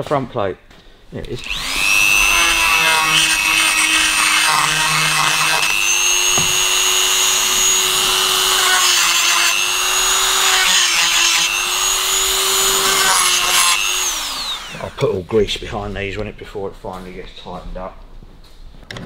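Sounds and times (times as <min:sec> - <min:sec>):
rotary tool high-pitched whine: 0:01.4 - 0:15.0.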